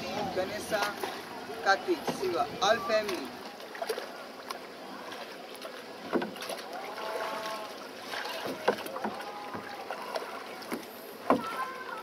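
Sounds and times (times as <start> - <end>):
river water washing: 0.0 - 12.0
oar knocking: 6.0 - 6.6, 8.2 - 11.6.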